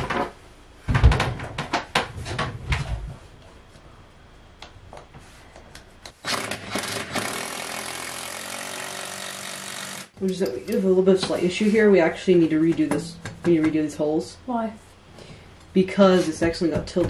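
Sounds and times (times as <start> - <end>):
cordless drill boring into wood: 6.2 - 10.1.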